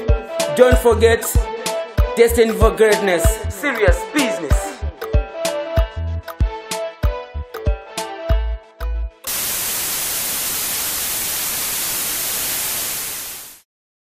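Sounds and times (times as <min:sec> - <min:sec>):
music with heavy kick drum: 0:00.1 - 0:08.4
tv static hiss: 0:09.3 - 0:13.7.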